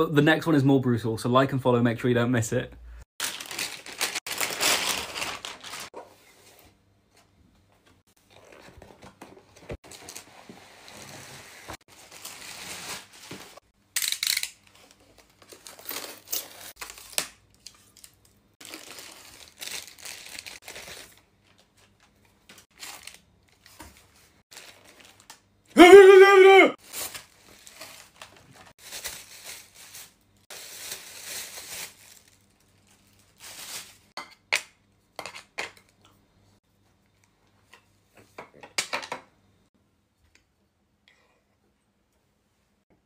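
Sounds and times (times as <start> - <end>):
plastic packaging crinkling: 3.2 - 6.0, 11.9 - 25.4, 26.8 - 34.1.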